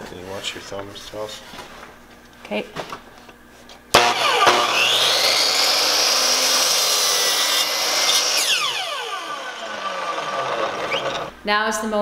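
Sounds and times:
saw blade cutting wood: 0:04.0 - 0:11.3
saw motor whine: 0:04.0 - 0:11.3.

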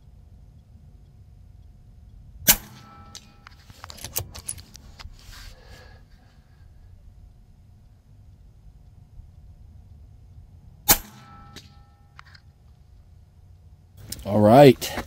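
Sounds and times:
air rifle shot: 0:02.4 - 0:03.0, 0:10.9 - 0:11.8
small clicks and knocks: 0:02.8 - 0:05.1, 0:11.5 - 0:14.3.

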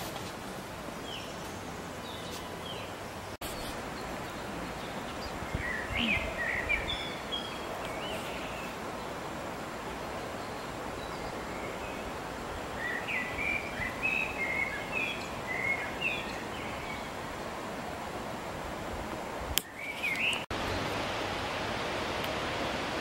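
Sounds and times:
distant waterfall rushing: 0:00.0 - 0:23.0
songbird chirping: 0:00.9 - 0:17.3, 0:19.6 - 0:20.9.

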